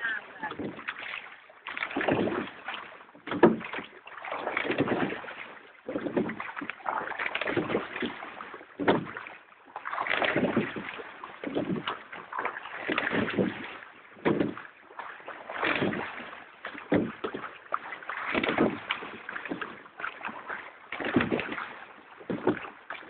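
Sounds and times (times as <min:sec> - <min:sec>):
oars rowing through water: 0:00.0 - 0:23.0.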